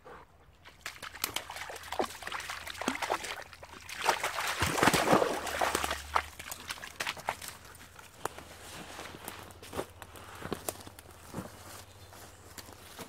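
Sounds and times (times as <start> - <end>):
water dripping: 0.6 - 7.9
dog splashing through water: 0.6 - 8.1.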